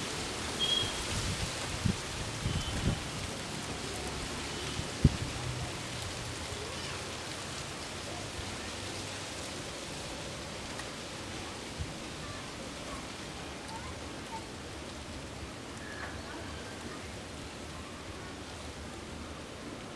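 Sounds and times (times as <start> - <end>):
wind buffeting microphone: 1.0 - 3.2.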